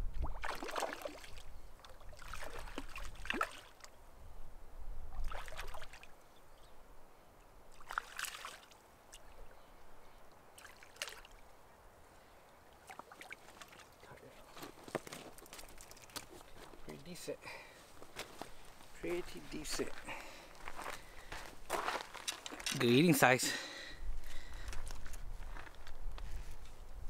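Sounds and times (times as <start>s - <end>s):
fish splashing in water: 0.3s - 3.9s, 7.8s - 8.8s.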